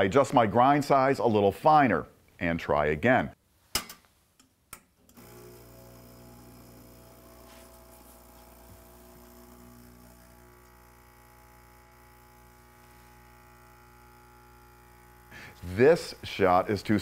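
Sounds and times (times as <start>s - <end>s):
espresso machine hum: 5.1s - 17.0s.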